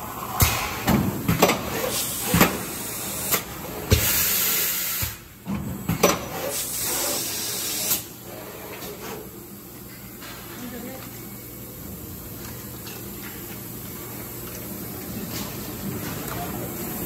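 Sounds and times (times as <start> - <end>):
loud air hisses: 1.9 - 5.3, 6.5 - 8.1.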